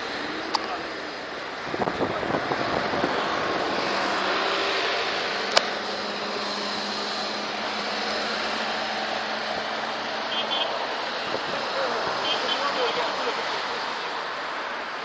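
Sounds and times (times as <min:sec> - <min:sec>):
road traffic rush: 0:00.0 - 0:15.0
vehicle engine hum: 0:00.0 - 0:15.0
sharp click: 0:05.5 - 0:05.7.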